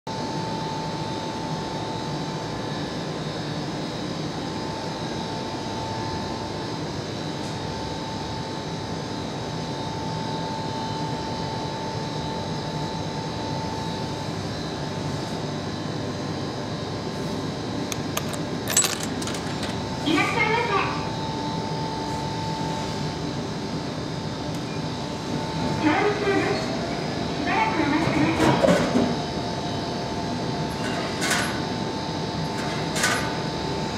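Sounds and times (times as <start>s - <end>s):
vending machine hum and whine: 0.1s - 33.9s
coins clattering into slot: 18.1s - 19.8s.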